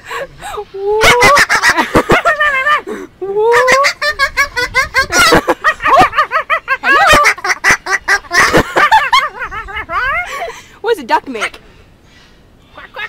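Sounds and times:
rapid high-pitched cackles: 1.0s - 2.8s, 3.4s - 10.3s.

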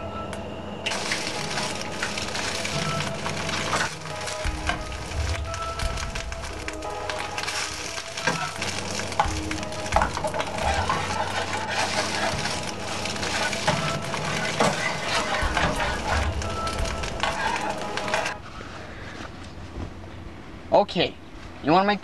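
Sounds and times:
eggs sizzling in frying pan: 0.9s - 18.4s
spatula scraping and clicking on pan: 9.9s - 18.4s.

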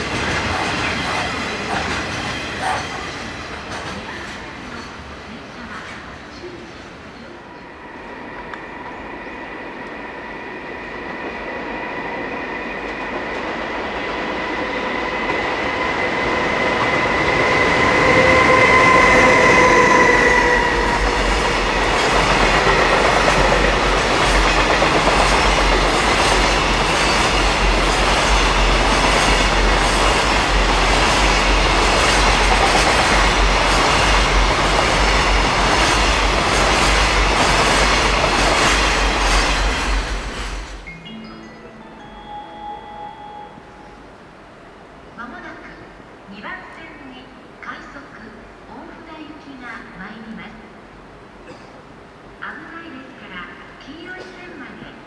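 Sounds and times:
electric locomotive whine: 7.1s - 45.0s.

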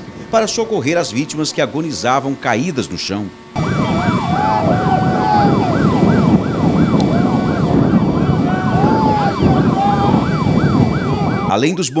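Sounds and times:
lower siren tone: 3.4s - 11.7s
dense low rumble: 3.6s - 11.6s
siren yelping: 3.6s - 12.0s.

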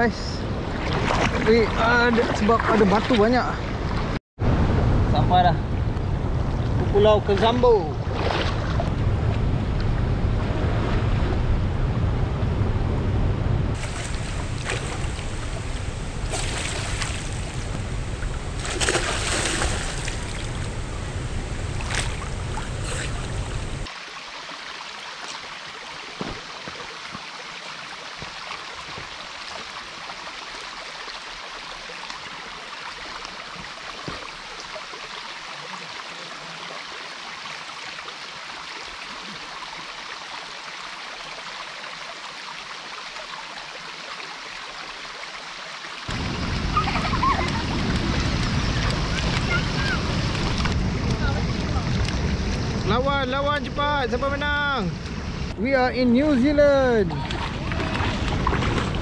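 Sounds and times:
steady stream flow: 0.0s - 4.2s, 13.8s - 59.0s
sharp splashes: 0.6s - 4.2s, 7.3s - 8.9s, 13.8s - 17.7s, 18.5s - 20.8s, 21.7s - 27.0s, 46.0s - 52.6s, 57.1s - 59.0s
heavy low rumble: 4.4s - 18.8s, 46.1s - 55.6s
river water rushing: 13.8s - 59.0s.

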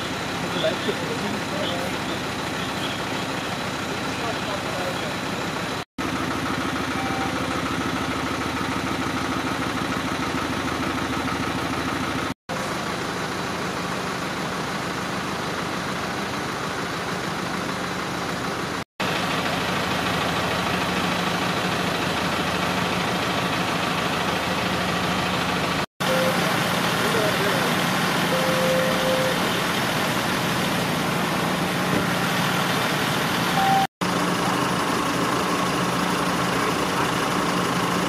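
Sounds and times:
fire engine idling: 0.0s - 38.0s.

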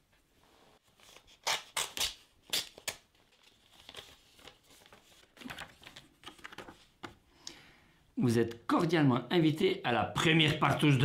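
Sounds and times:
envelope tearing: 1.0s - 5.6s
paper rustling: 3.1s - 7.2s.

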